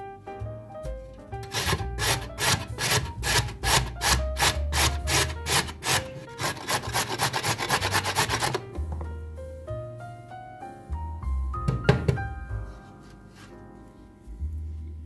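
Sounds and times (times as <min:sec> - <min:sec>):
carrot rasping on box grater: 0:01.4 - 0:08.6.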